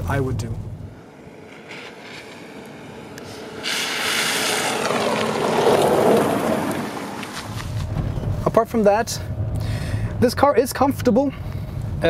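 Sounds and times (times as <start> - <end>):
van driving past: 1.0 - 10.3.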